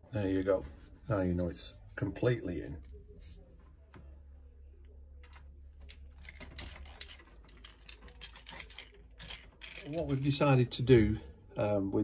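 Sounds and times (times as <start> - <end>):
small plastic clicks and rattles: 5.2 - 10.3.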